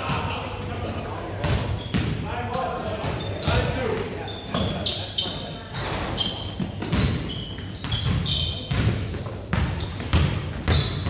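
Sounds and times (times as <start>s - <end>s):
sneakers squeaking on court: 1.4s - 11.0s
basketball bouncing on wooden floor: 5.8s - 11.0s.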